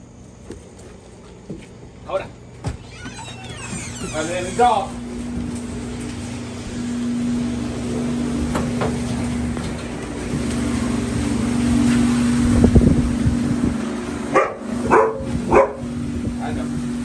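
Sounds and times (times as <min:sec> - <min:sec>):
steady low hum: 0:00.0 - 0:17.0
dog barking: 0:14.3 - 0:15.9.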